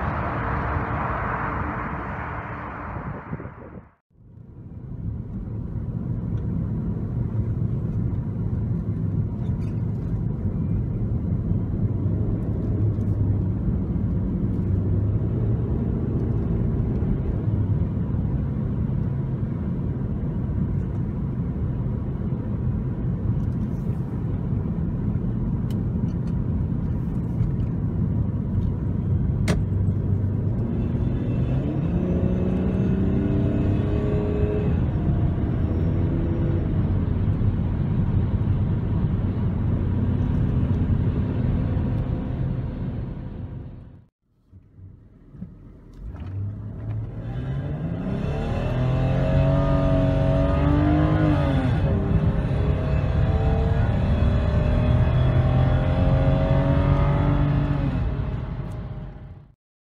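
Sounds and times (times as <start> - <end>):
car engine: 0.0 - 59.5.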